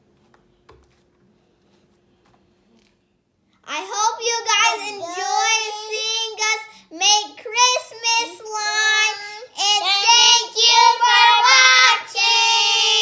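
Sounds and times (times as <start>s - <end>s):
girls singing together: 9.0s - 13.0s.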